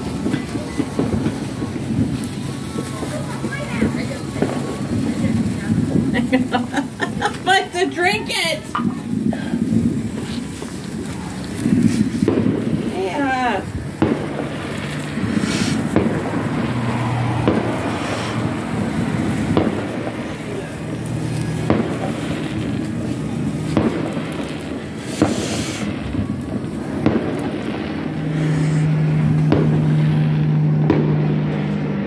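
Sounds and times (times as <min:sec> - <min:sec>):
distant fireworks bangs: 0:00.0 - 0:32.0
vehicle engine hum: 0:08.6 - 0:32.0.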